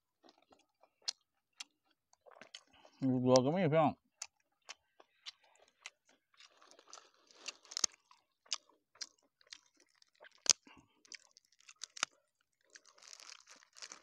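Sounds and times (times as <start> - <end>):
leaf wrapping crackling: 12.7 - 14.0.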